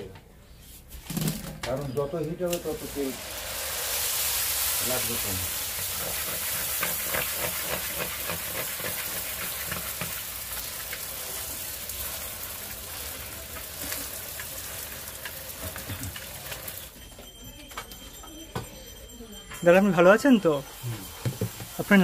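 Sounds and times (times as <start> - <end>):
food frying in hot oil: 2.4 - 17.0, 20.7 - 22.0.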